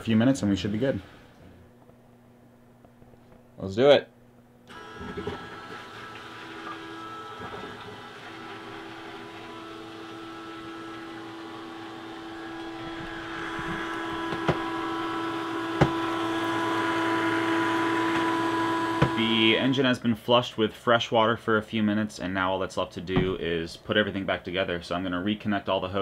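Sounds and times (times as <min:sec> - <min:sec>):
electric pump humming: 0:04.3 - 0:20.0.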